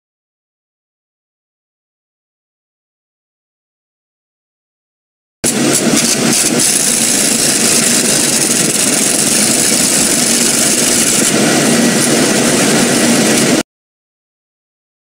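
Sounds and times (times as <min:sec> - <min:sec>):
loud hiss: 0:05.4 - 0:13.6
truck engine running: 0:05.4 - 0:13.6.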